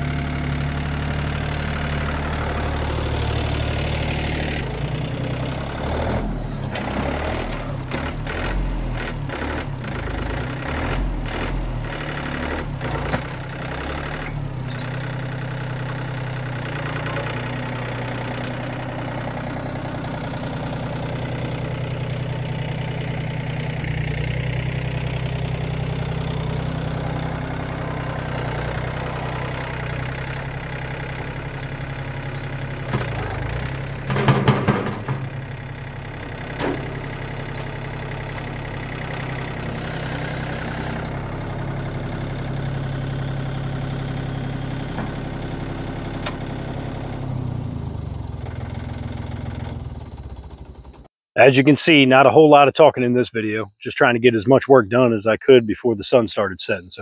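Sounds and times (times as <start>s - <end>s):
tractor diesel engine running: 0.0s - 56.1s
loader bucket clattering knocks: 32.2s - 38.0s.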